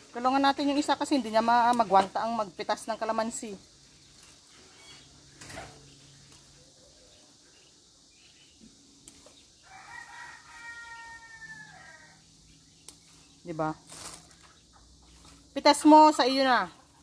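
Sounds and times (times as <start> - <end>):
rooster crowing: 9.6 - 12.3.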